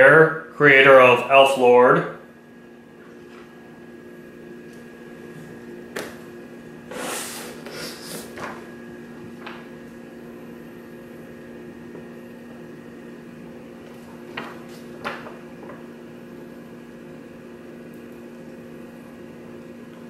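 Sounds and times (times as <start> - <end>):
steady hum: 0.0 - 20.0
comic books rustling and tapping: 8.2 - 9.7, 13.8 - 15.8.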